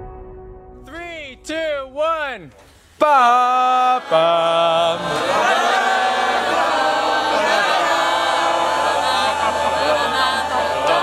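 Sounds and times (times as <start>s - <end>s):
crowd singing together: 3.6s - 11.0s.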